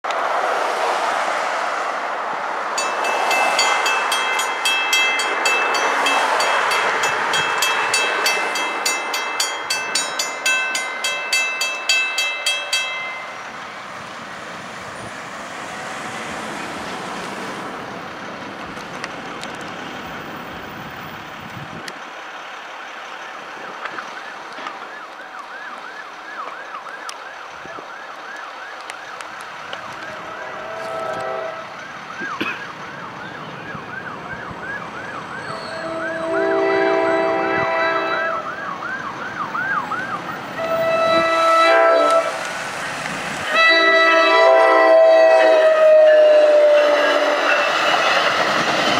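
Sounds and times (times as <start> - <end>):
traffic noise: 0.0 - 48.9
railroad crossing bell ringing: 2.7 - 13.9, 35.3 - 38.6, 40.5 - 42.4, 43.5 - 48.9
emergency siren yelping: 23.3 - 42.3, 43.5 - 47.7
multi-tone horn blasts: 30.0 - 31.8, 35.5 - 38.6, 40.5 - 42.5, 43.5 - 47.7.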